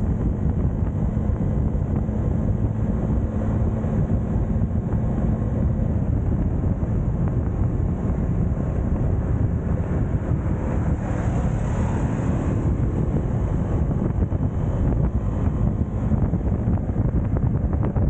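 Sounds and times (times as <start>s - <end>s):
motorcycle engine running: 0.0s - 18.0s
wind rushing over microphone: 0.0s - 18.0s.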